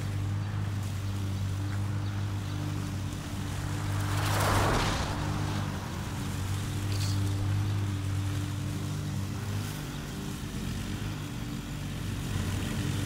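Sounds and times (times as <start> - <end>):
lawn mower engine running: 0.0 - 13.0
rush of noise: 3.0 - 8.4.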